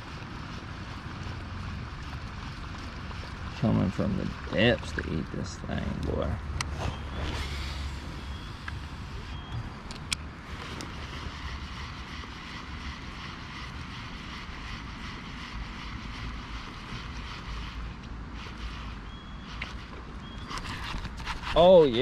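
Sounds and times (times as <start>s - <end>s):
fishing reel whirring: 6.2s - 22.0s.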